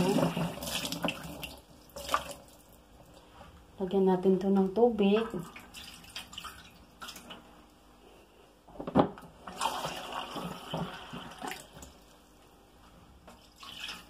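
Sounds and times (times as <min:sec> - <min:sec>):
water running and splashing: 0:00.0 - 0:02.7.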